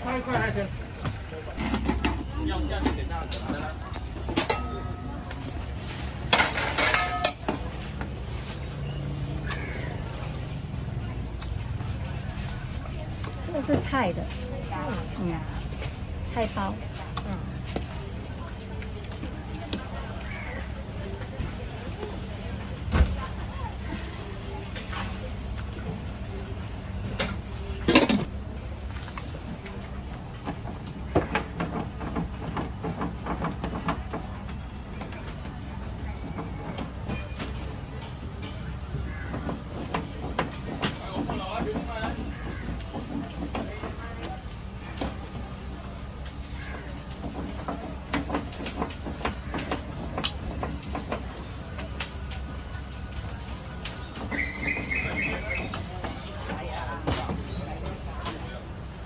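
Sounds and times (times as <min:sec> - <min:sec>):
metal utensils clinking on cookware: 0:04.2 - 0:05.2, 0:06.3 - 0:07.7.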